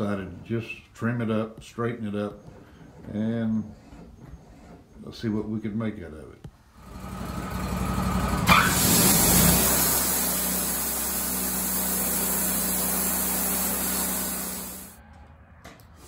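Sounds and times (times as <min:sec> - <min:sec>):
bandsaw mill running: 0:06.8 - 0:15.0.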